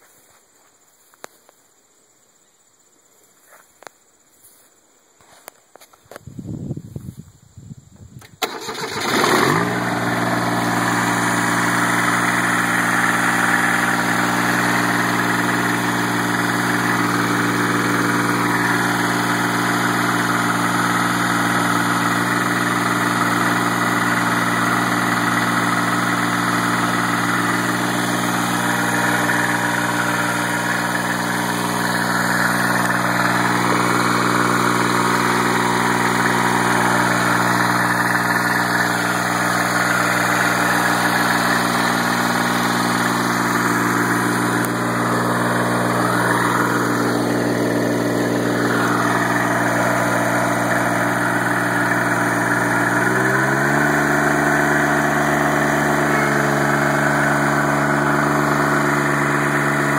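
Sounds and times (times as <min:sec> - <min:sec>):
diesel engine starting: 0:08.2 - 0:59.9.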